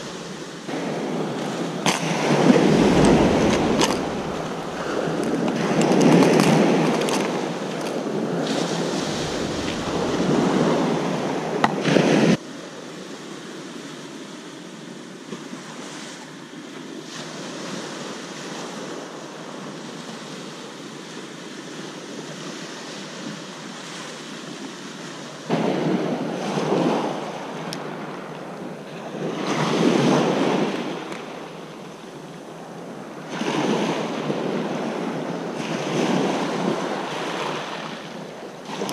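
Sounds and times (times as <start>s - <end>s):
waves washing up pebble beach: 2.0s - 5.8s, 8.5s - 11.4s
wind buffeting microphone: 2.0s - 7.1s, 8.3s - 11.8s.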